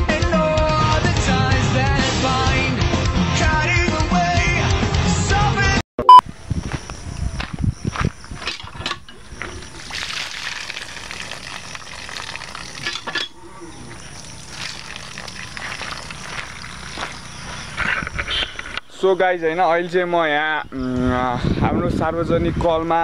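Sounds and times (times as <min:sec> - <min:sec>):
water gushing from hand pump: 0:08.7 - 0:17.8.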